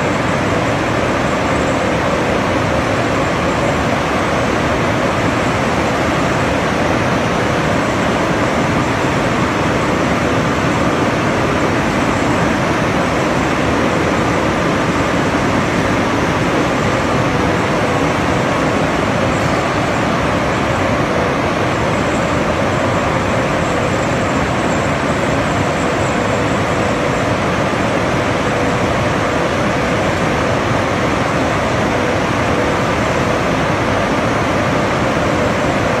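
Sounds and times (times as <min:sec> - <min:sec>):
milling machinery running: 0:00.0 - 0:36.0.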